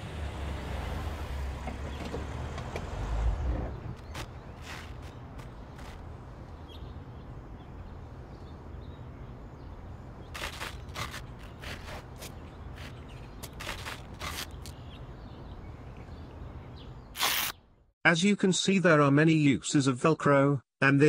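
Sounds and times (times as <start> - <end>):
velcro ripping: 4.0 - 6.0, 10.4 - 14.7, 17.2 - 17.6.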